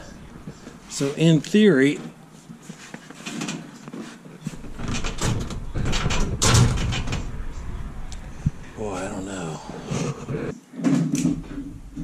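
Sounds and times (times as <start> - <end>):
low rumble: 5.2 - 10.5.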